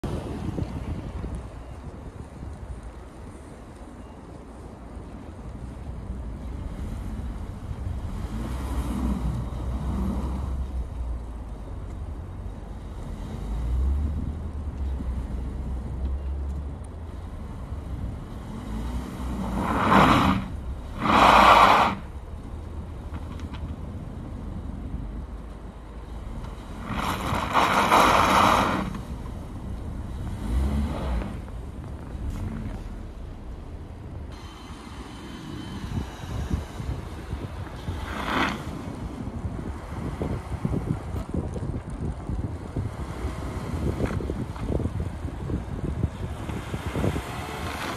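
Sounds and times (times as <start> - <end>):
wheels spinning in snow: 17.3 - 25.5, 26.2 - 47.9
car engine revving: 17.5 - 23.5, 26.1 - 39.2.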